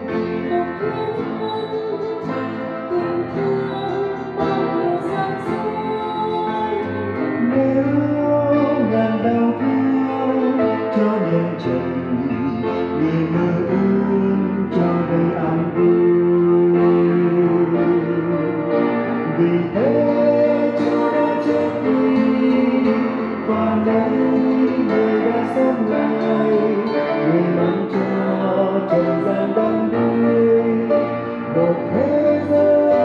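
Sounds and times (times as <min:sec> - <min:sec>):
instrumental accompaniment: 0:00.0 - 0:33.0
choir singing a hymn: 0:19.6 - 0:33.0.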